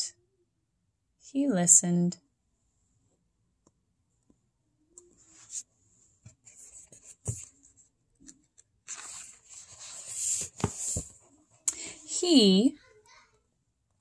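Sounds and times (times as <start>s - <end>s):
paper page rustling: 6.5s - 11.2s.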